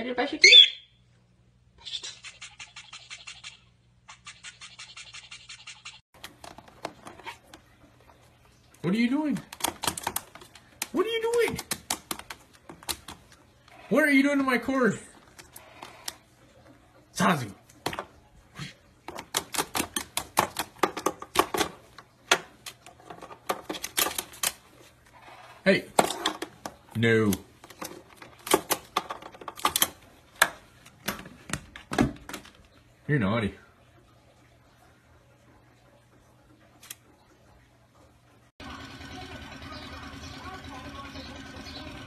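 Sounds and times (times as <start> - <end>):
beak clicking on hard plastic: 9.4 - 13.3, 19.1 - 22.8
parrot feet tapping on plastic: 9.4 - 13.4, 19.0 - 24.6.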